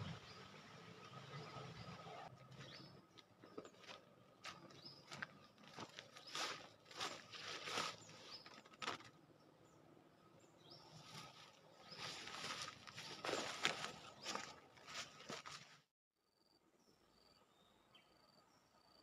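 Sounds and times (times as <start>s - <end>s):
rustling and handling noise: 3.4s - 9.2s, 11.0s - 15.8s.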